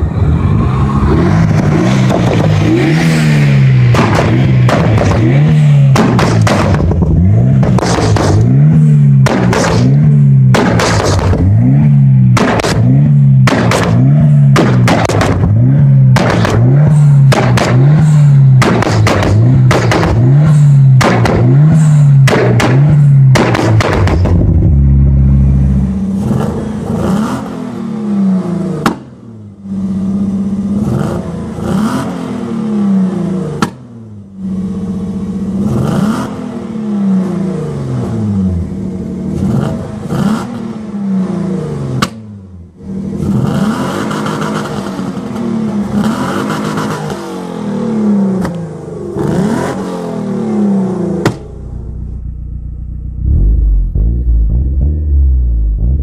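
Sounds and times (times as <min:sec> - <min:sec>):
car engine revving: 0:00.0 - 0:56.0
car exhaust bangs and crackles: 0:01.0 - 0:27.6, 0:28.7 - 0:32.1, 0:50.9 - 0:56.0.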